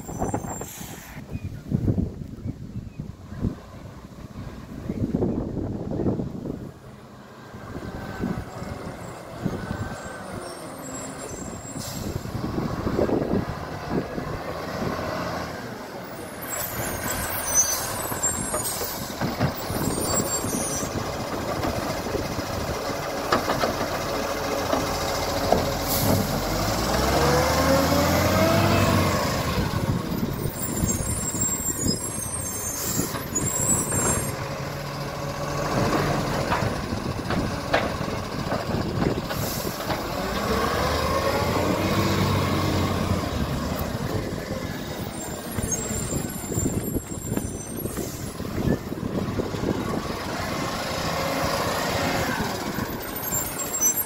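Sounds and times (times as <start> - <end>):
air brake hissing: 0.3 - 1.3, 11.5 - 12.4, 25.8 - 26.3, 39.3 - 39.8
diesel truck engine revving: 3.3 - 54.0.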